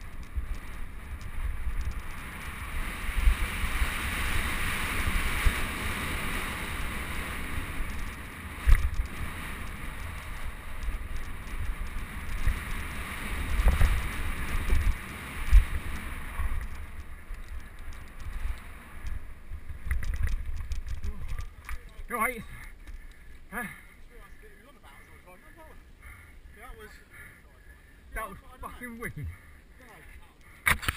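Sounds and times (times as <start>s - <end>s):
wind rushing on microphone: 0.0s - 22.2s
bike tyre noise: 0.0s - 28.0s.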